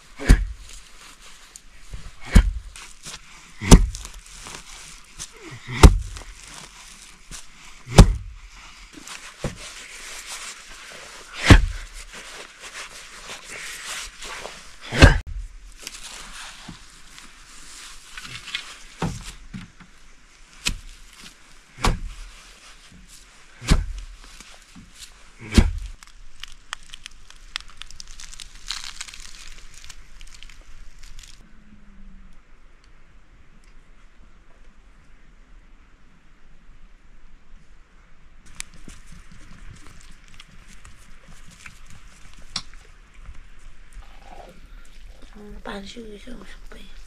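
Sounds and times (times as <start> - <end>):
faint steady hiss: 0.0 - 47.0
heavy knocks and thuds: 2.2 - 2.7, 3.7 - 4.1, 5.8 - 6.2, 7.9 - 8.4, 11.4 - 11.9, 23.6 - 24.0.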